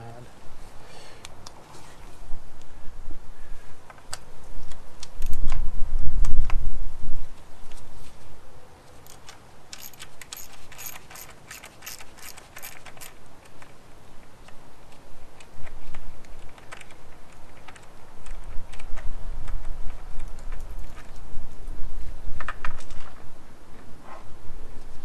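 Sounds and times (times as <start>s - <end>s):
oil lines clicking and rattling: 9.0s - 13.7s.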